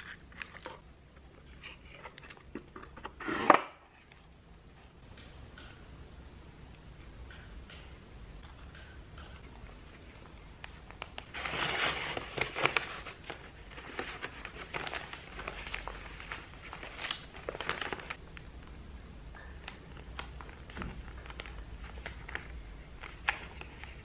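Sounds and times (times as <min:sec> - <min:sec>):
paper envelope rustling and crinkling: 0:00.0 - 0:00.8, 0:10.2 - 0:18.2, 0:19.6 - 0:24.0.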